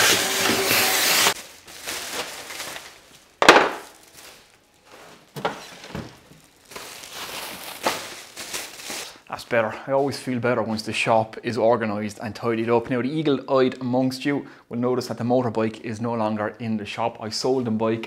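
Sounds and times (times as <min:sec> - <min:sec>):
workshop vacuum hissing: 0:00.0 - 0:01.4
plastic bin bag rustling: 0:01.3 - 0:09.2.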